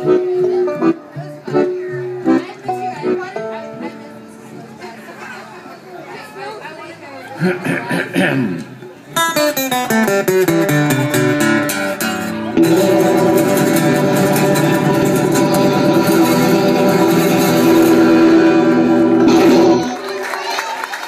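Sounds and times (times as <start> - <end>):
accordion: 0.0 - 5.5, 9.2 - 20.4
acoustic guitar: 7.4 - 20.2
banjo: 10.0 - 20.0.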